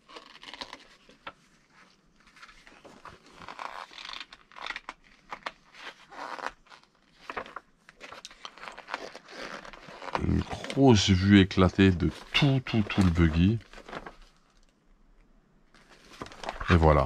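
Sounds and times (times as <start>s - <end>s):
plastic bags and paper crinkling: 0.0s - 14.8s, 15.7s - 17.0s.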